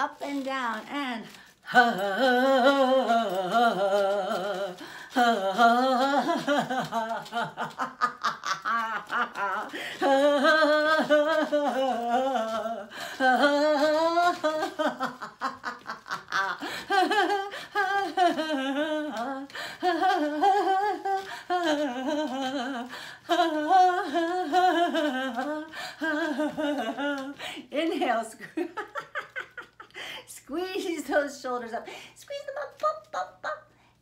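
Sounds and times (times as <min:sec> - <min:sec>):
woman laughing: 0:05.2 - 0:31.3
short breaths: 0:29.9 - 0:30.3.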